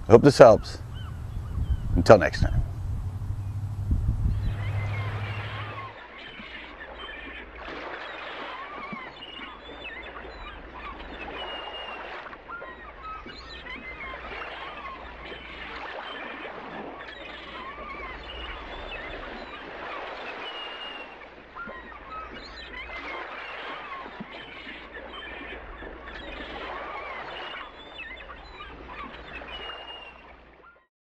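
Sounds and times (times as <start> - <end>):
steady low rumble: 0.0 - 5.9
chorus of birds calling: 0.0 - 30.8.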